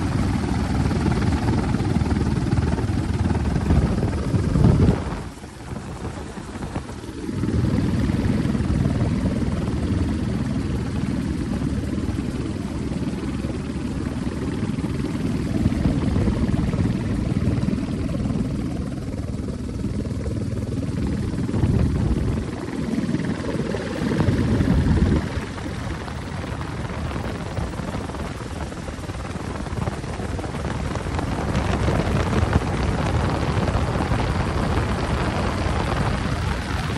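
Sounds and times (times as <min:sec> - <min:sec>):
helicopter rotor and turbine noise: 0:00.0 - 0:36.9.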